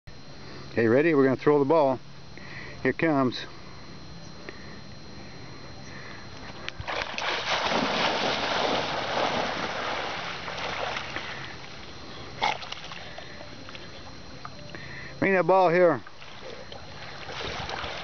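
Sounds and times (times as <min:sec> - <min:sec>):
dog splashing through water: 0:06.9 - 0:11.4, 0:17.0 - 0:18.0.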